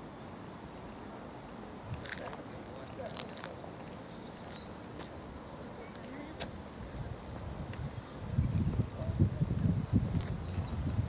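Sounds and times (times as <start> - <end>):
small birds chirping: 0.0 - 11.0
faint distant voices: 0.8 - 7.4.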